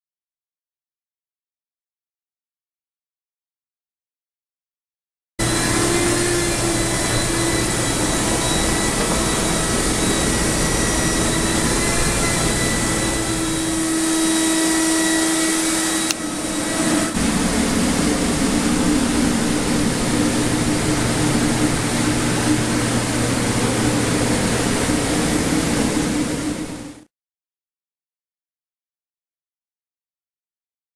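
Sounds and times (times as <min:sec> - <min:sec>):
drying fans rushing: 0:05.4 - 0:27.0
motor hum and whine: 0:05.4 - 0:27.1.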